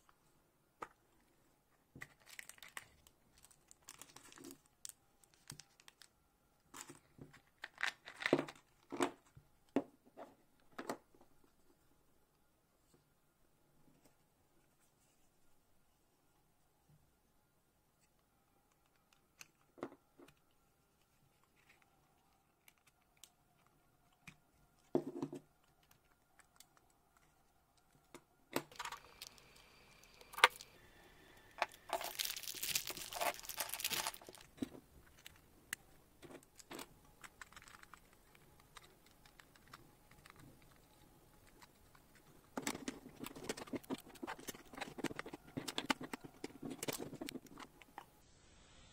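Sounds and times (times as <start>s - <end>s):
plastic bag crinkling: 2.1s - 6.1s, 28.7s - 30.8s, 31.5s - 35.4s
plastic parts clattering: 28.6s - 30.7s, 31.6s - 35.4s.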